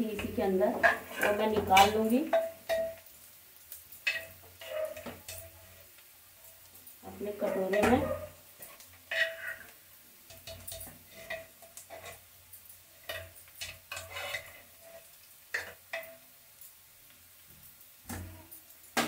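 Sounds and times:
spoon scraping in steel pot: 0:07.5 - 0:09.7, 0:13.9 - 0:15.8.

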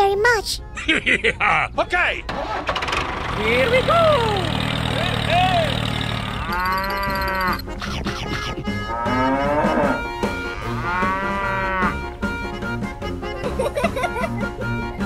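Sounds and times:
faint background music: 0:00.0 - 0:02.6, 0:07.4 - 0:15.0
cattle mooing: 0:05.6 - 0:07.7, 0:08.8 - 0:12.1.

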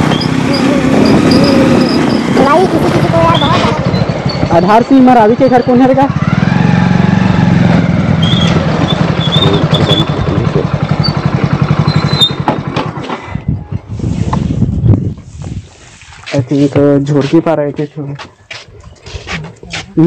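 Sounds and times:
motorcycle engine running: 0:00.0 - 0:15.7.

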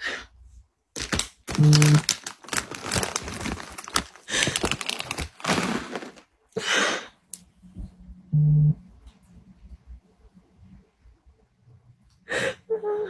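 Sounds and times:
brief low tone: 0:07.8 - 0:09.0.

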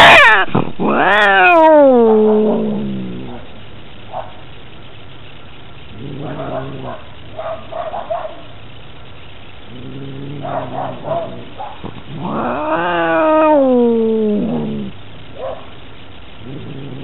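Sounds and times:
cat yowling: 0:00.0 - 0:03.5, 0:12.1 - 0:14.9
cat growling: 0:00.0 - 0:03.6, 0:05.9 - 0:07.1, 0:09.7 - 0:15.0, 0:16.4 - 0:17.0.

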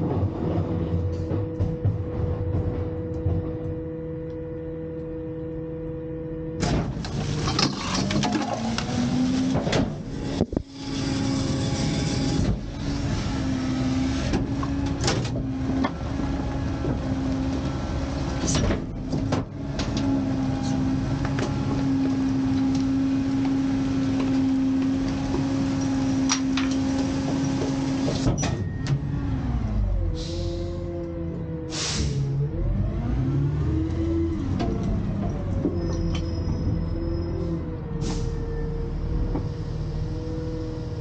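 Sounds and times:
truck engine and hydraulics drone: 0:00.0 - 0:41.0
clanks and crunches: 0:06.6 - 0:10.7.

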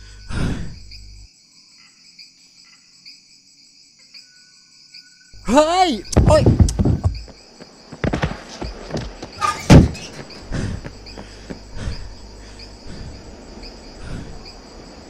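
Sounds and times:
crickets chirping: 0:00.0 - 0:15.0
dull thumps: 0:06.1 - 0:12.0.

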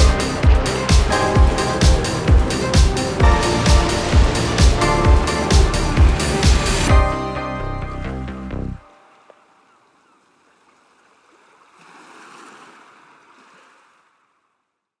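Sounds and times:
soundtrack music note: 0:00.0 - 0:09.2
faint wash of sea water: 0:08.9 - 0:14.7.

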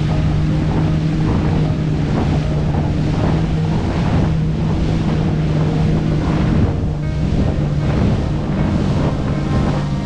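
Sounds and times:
jet ski engine running: 0:00.0 - 0:10.0
wind buffeting microphone: 0:00.0 - 0:10.0.

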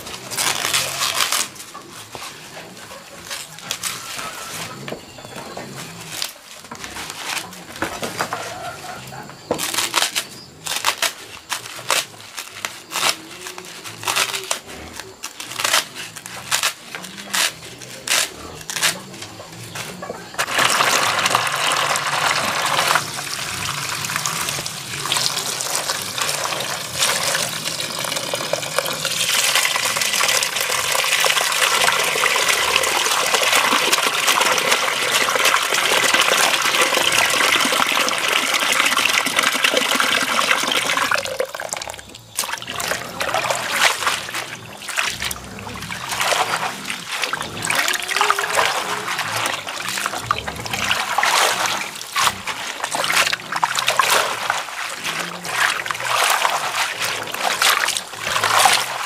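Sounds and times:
leaves and stems snapping: 0:00.1 - 0:01.7, 0:09.5 - 0:19.4
water pouring into plastic basin: 0:20.4 - 0:59.0
greens swished in water: 0:45.9 - 0:59.0.

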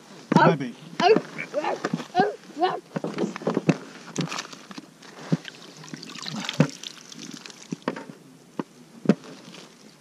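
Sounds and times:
water splashing and trickling: 0:05.1 - 0:08.0.

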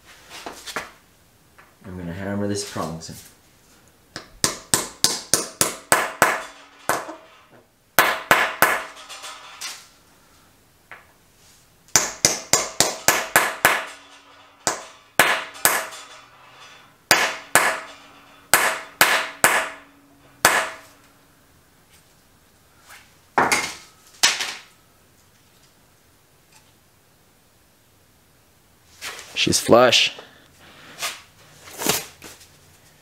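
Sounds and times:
hammer striking metal tool: 0:04.2 - 0:09.6, 0:11.9 - 0:20.9.

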